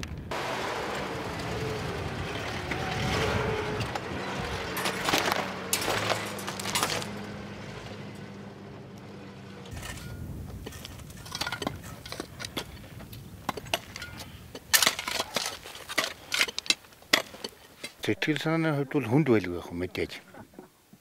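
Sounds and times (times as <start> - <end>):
truck engine running: 0.0 - 13.5
load scraping and knocking: 2.4 - 7.4, 9.6 - 18.0.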